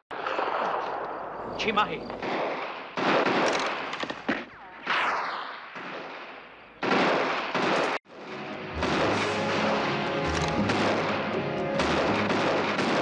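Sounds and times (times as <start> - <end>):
rifle shots: 0.1 - 8.0, 8.8 - 13.0
film music: 8.1 - 13.0.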